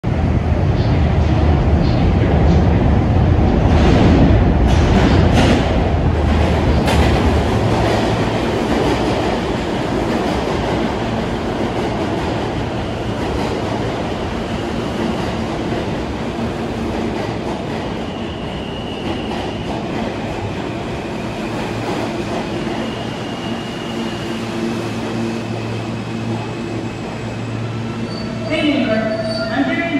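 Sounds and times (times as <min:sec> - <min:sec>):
subway train rumbling: 0:00.0 - 0:29.9
high-pitched brake squeals: 0:28.0 - 0:29.9.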